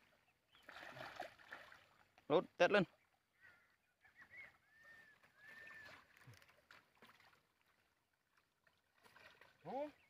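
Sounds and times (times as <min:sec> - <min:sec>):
faint whistled calls: 0:03.4 - 0:06.1.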